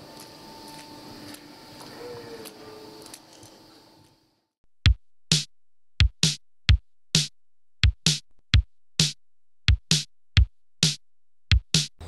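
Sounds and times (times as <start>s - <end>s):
drum machine beat: 4.8s - 12.0s.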